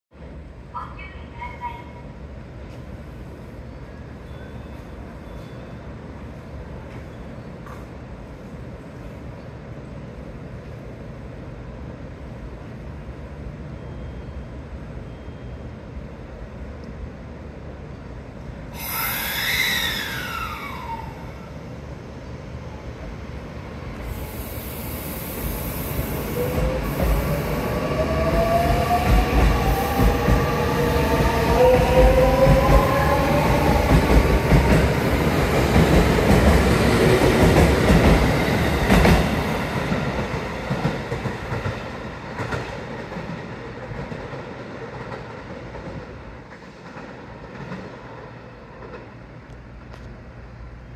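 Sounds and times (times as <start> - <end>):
falling tone with hiss: 18.7 - 21.6
train wheels rumbling and clattering: 23.9 - 50.6.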